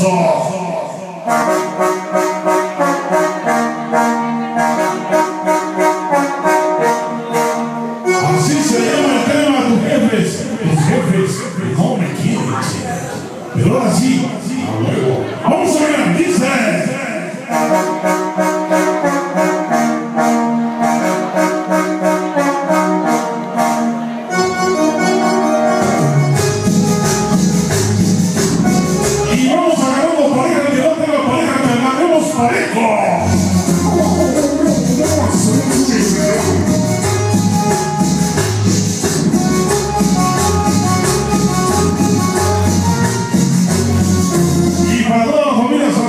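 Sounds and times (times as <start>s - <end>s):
brass-led dance music: 0.0s - 46.0s.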